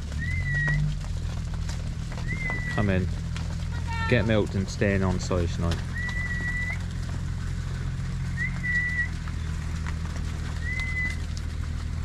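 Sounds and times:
constant low rumble: 0.0 - 12.0
person whistling: 8.4 - 9.1.

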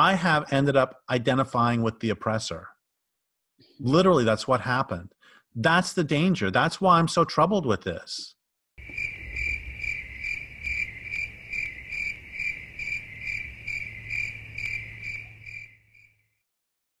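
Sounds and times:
crickets chirping: 8.8 - 16.4.

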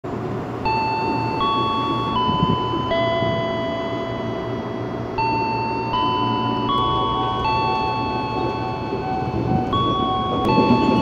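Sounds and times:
electronic chime melody: 0.6 - 11.0.

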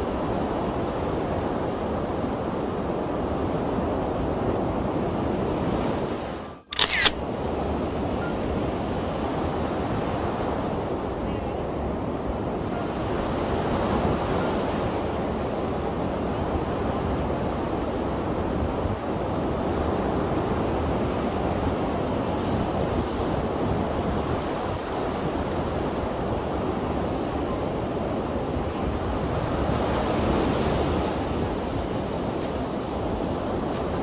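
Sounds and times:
ocean surf breaking: 24.4 - 34.0.

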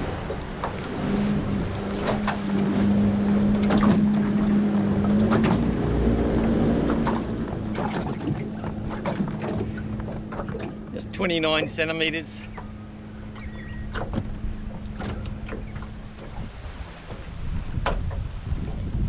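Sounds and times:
boat engine humming: 0.0 - 19.0
wind on microphone: 13.4 - 19.0.

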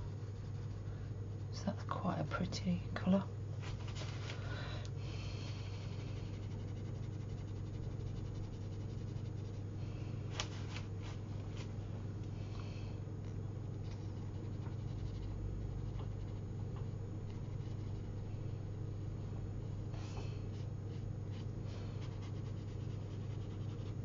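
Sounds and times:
brush scrubbing on paper: 0.0 - 1.0, 5.6 - 9.7, 20.6 - 24.0
steady low hum: 0.0 - 24.0.

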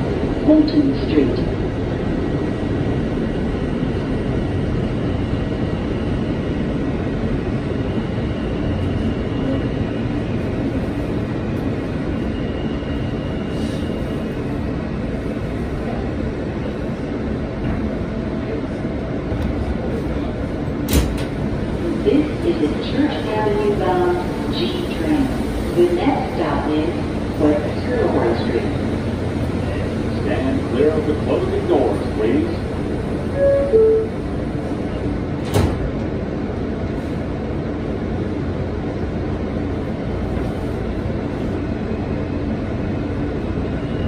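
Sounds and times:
train wheels rumbling on rails: 0.0 - 44.0.

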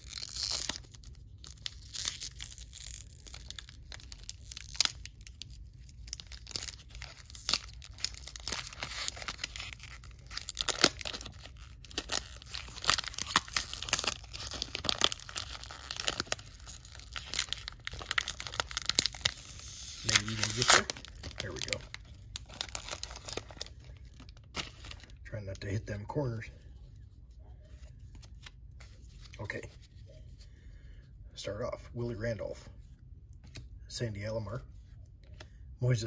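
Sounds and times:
card pack wrapper tearing and crinkling: 0.0 - 25.8.

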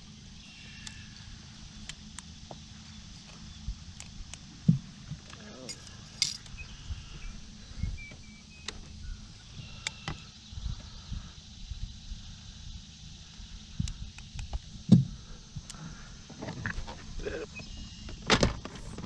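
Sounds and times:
fishing tackle clinking: 5.7 - 6.4.

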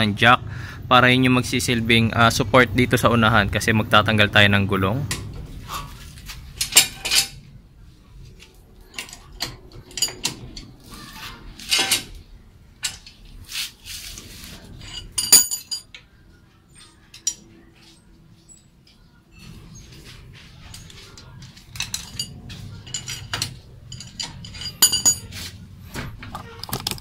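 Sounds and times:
metal tools clinking: 6.5 - 7.5, 8.3 - 12.2, 12.8 - 13.4, 14.2 - 16.1, 16.7 - 18.0, 19.4 - 25.6
bright ringing metallic clink: 23.9 - 25.3.

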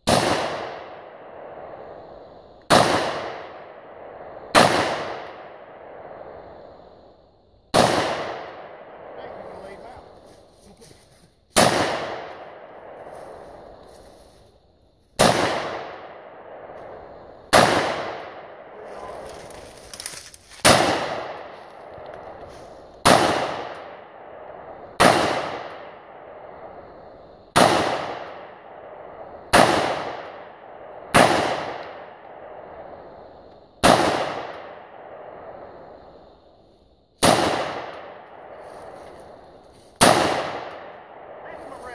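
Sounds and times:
rifle shots: 0.0 - 1.8, 2.7 - 6.1, 7.7 - 9.8, 11.5 - 13.5, 15.2 - 22.4, 23.0 - 26.4, 27.5 - 32.2, 33.8 - 35.3, 37.2 - 38.6, 40.0 - 41.9
gunshot echo: 0.0 - 1.9, 2.7 - 6.2, 7.7 - 9.8, 11.5 - 13.5, 15.2 - 22.4, 23.0 - 26.5, 27.6 - 32.3, 33.8 - 35.5, 37.2 - 38.6, 40.0 - 41.9.

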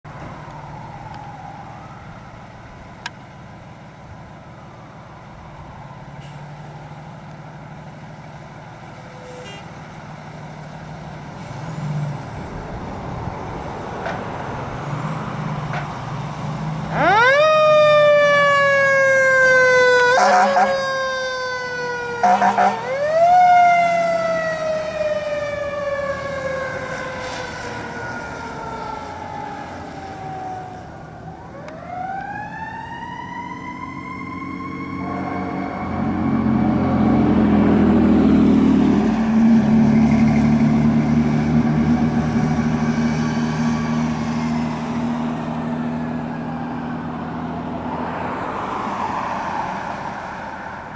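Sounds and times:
diesel engine rumbling: 0.0 - 48.6
fire engine siren wailing: 0.1 - 11.6, 14.4 - 50.9
horn blasts: 20.1 - 20.8, 22.2 - 23.0.

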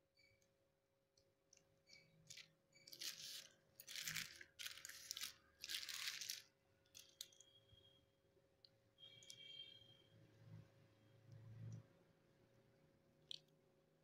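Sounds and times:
plastic sheet crinkling: 2.2 - 7.4.

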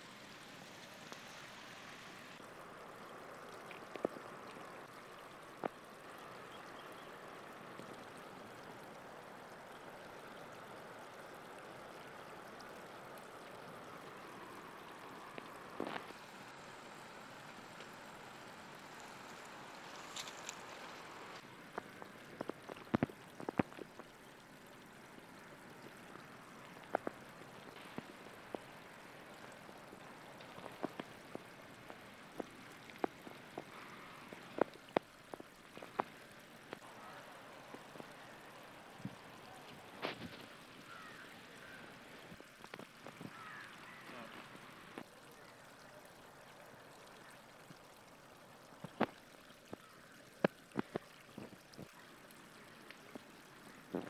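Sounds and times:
river water hiss: 0.0 - 54.0
clicks and taps of fishing line: 20.0 - 24.2, 25.8 - 36.9, 42.3 - 45.2, 47.6 - 54.0.

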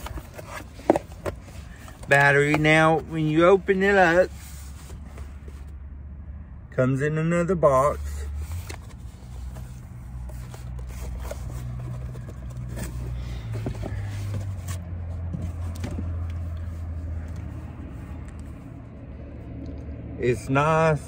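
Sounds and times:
cardboard box scraping and rustling: 0.0 - 5.7, 8.0 - 16.2
low steady rumble: 0.0 - 21.0.

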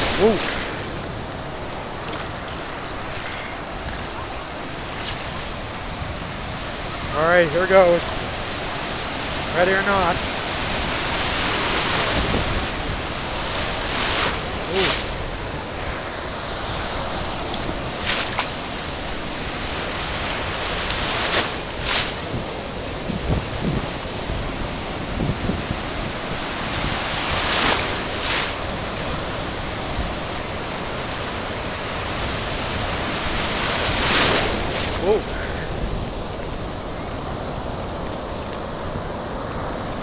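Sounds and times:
sharp water splashes: 0.0 - 7.0, 7.7 - 22.3, 26.2 - 36.4
ocean surf washing: 0.0 - 40.0
wind buffeting microphone: 0.0 - 40.0.

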